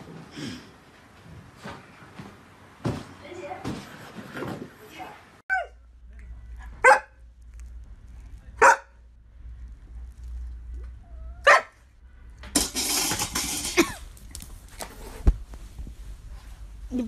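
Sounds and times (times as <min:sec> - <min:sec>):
dog barking: 0:06.8 - 0:07.2, 0:08.6 - 0:09.0, 0:11.4 - 0:11.8.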